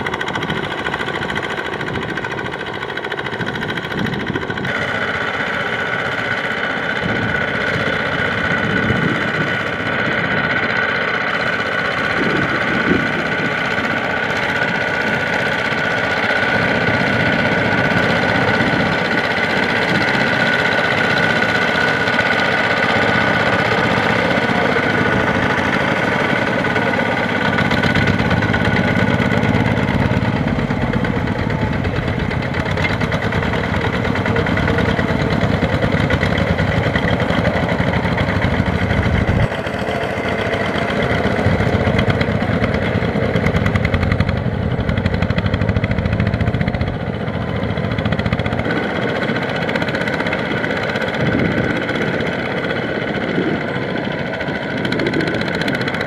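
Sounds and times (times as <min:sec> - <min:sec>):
diesel engines chugging: 0:00.0 - 0:56.0.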